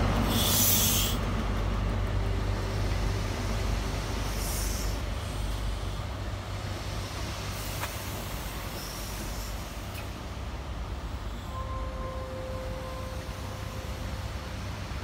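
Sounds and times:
diesel train engine running: 0.0 - 15.0
train coaches rolling by: 0.0 - 15.0
short hisses: 0.3 - 1.2.

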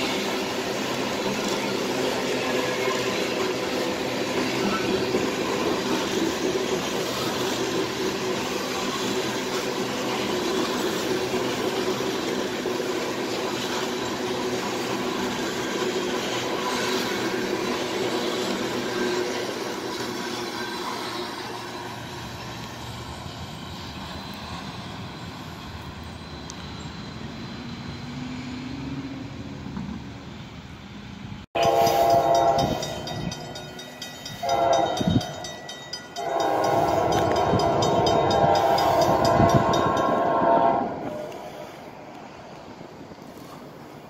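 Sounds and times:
freight train cars rolling: 0.0 - 44.0
locomotive air horn blasts: 31.6 - 33.0, 34.4 - 35.4, 36.2 - 41.6
crossing bell ringing: 31.6 - 41.1.

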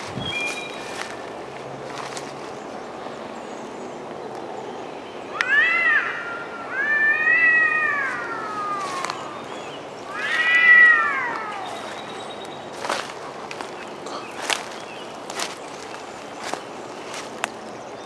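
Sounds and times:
cat yowling: 5.3 - 9.5, 10.1 - 12.0.

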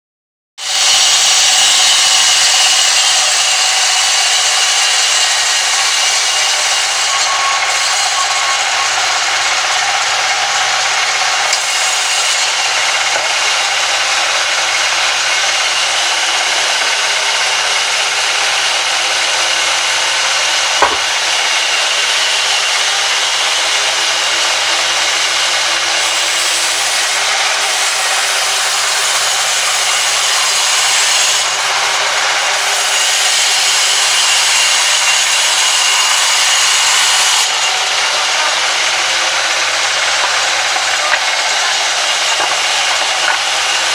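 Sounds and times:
band saw cutting log: 0.6 - 43.9.

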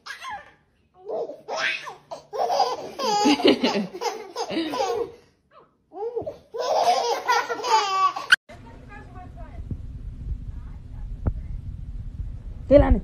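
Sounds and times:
young children laughing: 2.1 - 5.3, 6.2 - 8.4.

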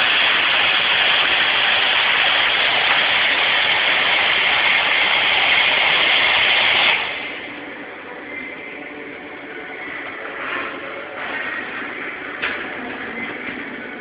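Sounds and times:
welding arc hissing: 0.0 - 7.7.

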